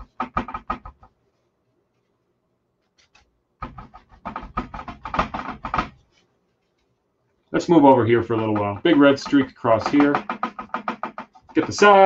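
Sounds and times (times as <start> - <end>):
paper towel dabbing canvas: 2.8 - 12.0.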